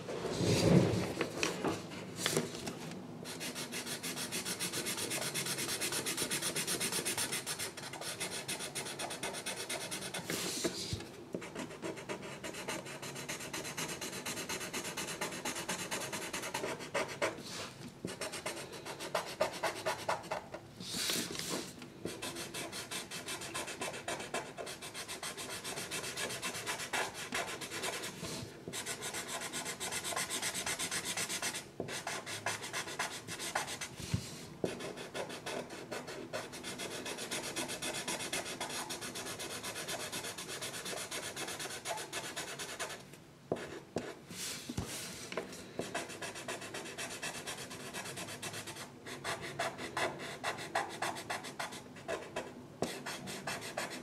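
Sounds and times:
scribbling on paper: 0:45.9 - 0:54.0.

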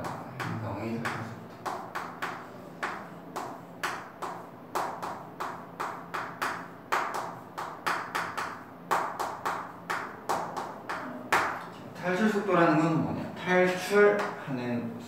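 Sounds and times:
chalk tapping on chalkboard: 0:00.0 - 0:11.6.

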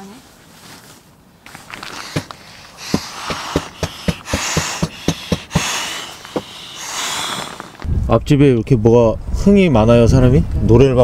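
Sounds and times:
taps and nylon rustling: 0:00.7 - 0:07.9
breath puffs inflating pillow: 0:01.6 - 0:07.9.

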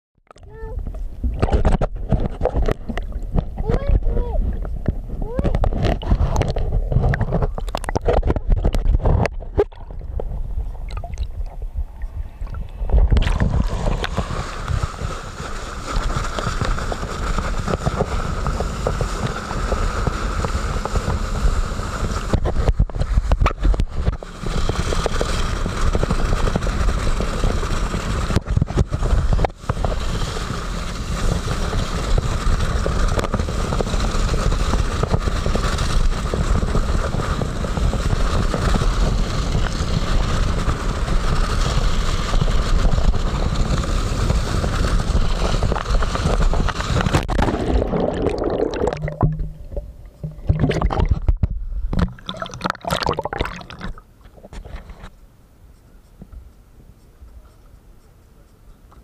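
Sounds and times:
water rushing against wakeboard: 0:00.3 - 0:55.2
knocking and rubbing on camera: 0:01.3 - 0:09.6.

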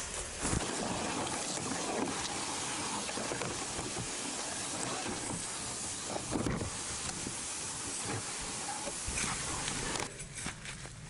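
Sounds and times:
steady outdoor hiss: 0:00.0 - 0:11.0.

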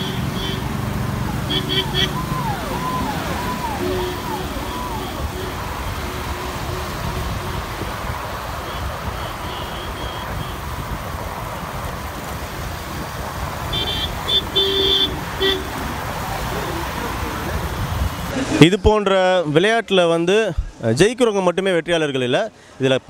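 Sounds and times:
street noise low rumble: 0:00.0 - 0:19.6.

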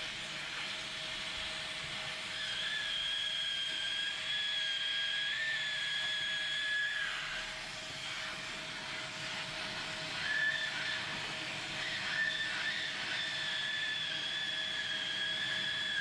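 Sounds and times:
hot air welder hissing: 0:00.0 - 0:16.0
high whistle: 0:02.3 - 0:07.5, 0:10.2 - 0:11.1, 0:11.7 - 0:16.0.

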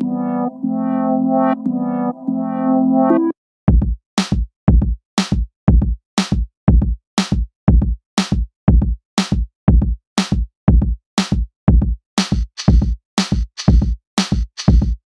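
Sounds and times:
drum machine electronic beat: 0:03.1 - 0:15.0.

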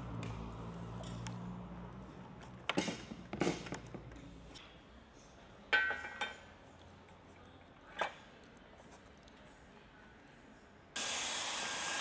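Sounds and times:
hot-air welder humming: 0:11.0 - 0:12.0.

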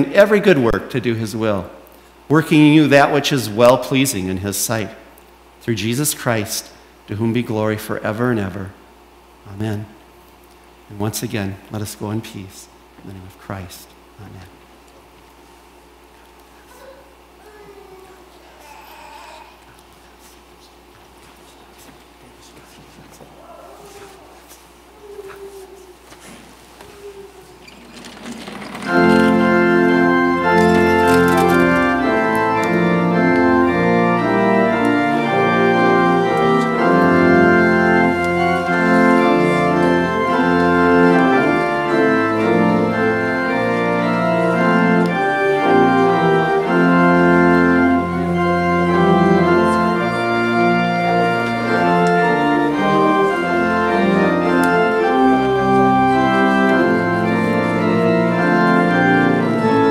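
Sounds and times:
pipe organ chords: 0:00.0 - 0:09.8, 0:27.7 - 0:59.9.

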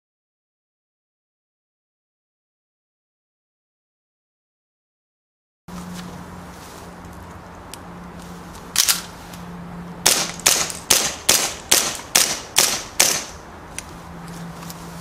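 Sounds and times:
airsoft pistol shots: 0:10.0 - 0:13.4.

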